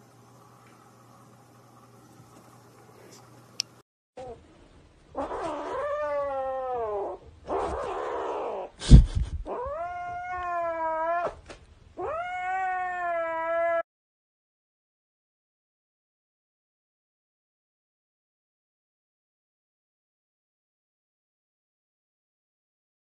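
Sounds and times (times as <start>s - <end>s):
kitten meowing: 9.5s - 11.4s, 12.0s - 13.8s.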